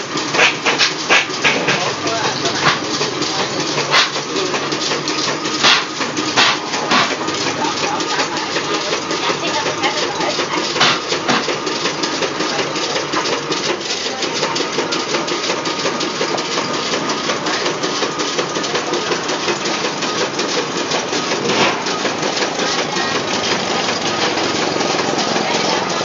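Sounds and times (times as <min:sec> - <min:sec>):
machine rapid mechanical clatter: 0:00.0 - 0:26.0.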